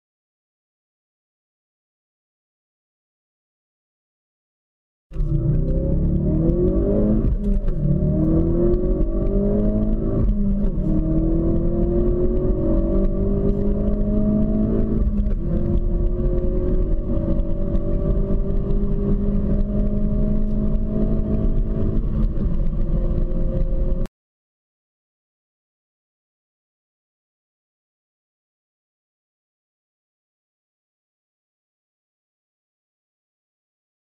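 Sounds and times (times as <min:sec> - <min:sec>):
car engine accelerating hard: 0:05.2 - 0:24.1.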